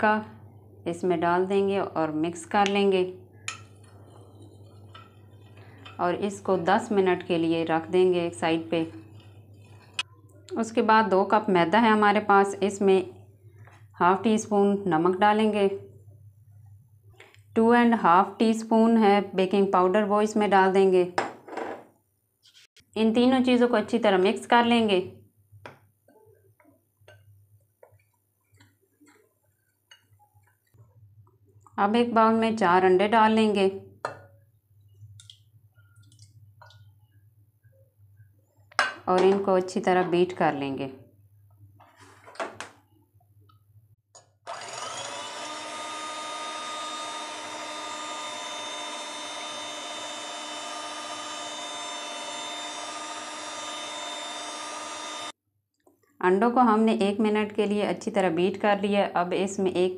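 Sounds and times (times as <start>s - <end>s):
spoon stirring flour in glass bowl: 3.4s - 6.0s
electric hand mixer whining: 44.4s - 55.4s.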